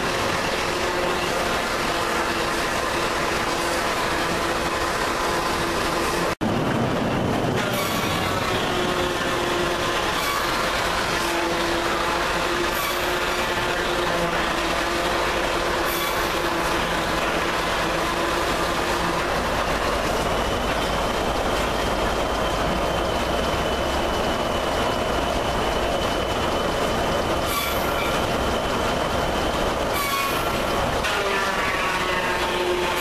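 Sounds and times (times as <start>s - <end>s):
sawmill machinery din: 0.0s - 33.0s
high saw whine: 7.6s - 33.0s.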